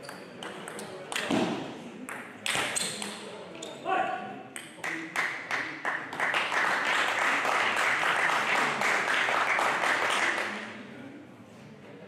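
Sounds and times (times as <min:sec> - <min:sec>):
spectators applauding: 0:05.2 - 0:10.6.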